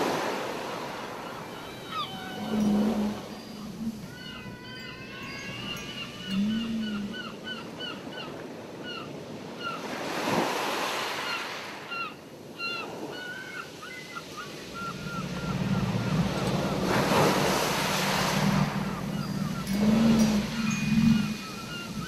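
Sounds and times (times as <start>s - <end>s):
ocean surf washing in: 0.0s - 4.1s, 14.3s - 22.0s
gull crying: 1.3s - 7.9s, 14.5s - 22.0s
low steady tone: 1.7s - 7.3s, 14.8s - 22.0s.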